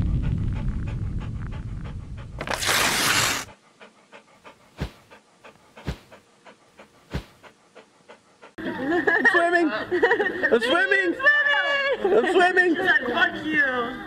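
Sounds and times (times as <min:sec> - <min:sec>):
low rumble: 0:00.0 - 0:02.6
dog panting: 0:00.0 - 0:09.5.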